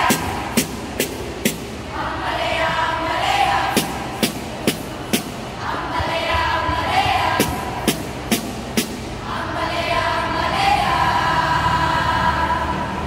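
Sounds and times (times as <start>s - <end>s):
sharp percussive hits: 0.0s - 1.9s, 3.7s - 5.6s, 7.4s - 9.2s
young voices chanting in unison: 0.0s - 13.0s.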